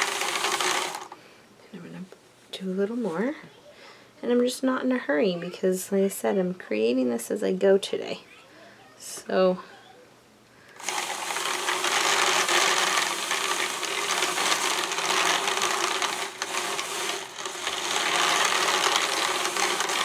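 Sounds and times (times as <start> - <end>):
drum carder whirring: 0.0 - 1.2, 10.7 - 20.0.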